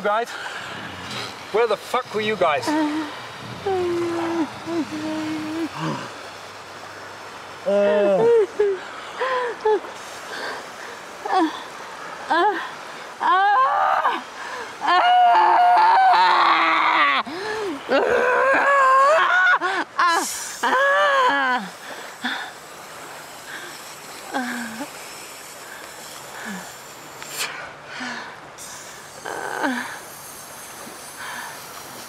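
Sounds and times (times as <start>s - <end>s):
woman wailing: 2.7s - 6.1s, 7.7s - 8.8s, 12.3s - 21.7s.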